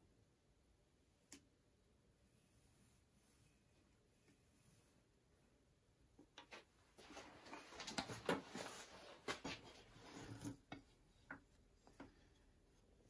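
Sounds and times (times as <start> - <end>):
scraping and rustling on workbench: 6.5 - 12.4.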